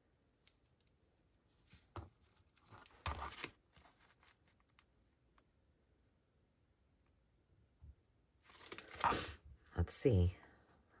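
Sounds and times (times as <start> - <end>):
paper crinkling: 1.6 - 5.1, 8.4 - 9.1.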